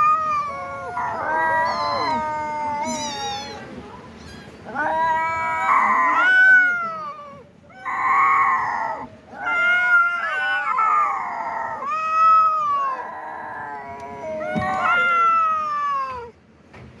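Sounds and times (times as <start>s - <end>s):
cats yowling: 0.0s - 16.4s.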